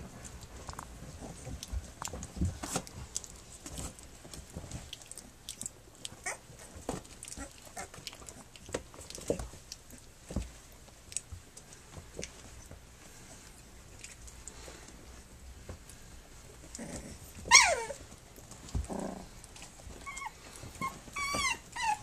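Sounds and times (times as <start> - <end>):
puppies scuffling and chewing: 0.0 - 22.0
puppy squeaks: 6.2 - 6.4, 17.5 - 18.0, 20.0 - 22.0.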